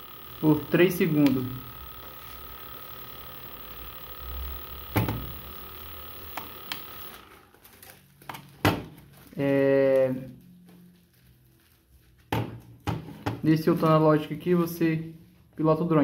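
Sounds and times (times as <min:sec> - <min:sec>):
sharp clicks: 0:00.0 - 0:07.2
drone motors humming: 0:00.0 - 0:07.3.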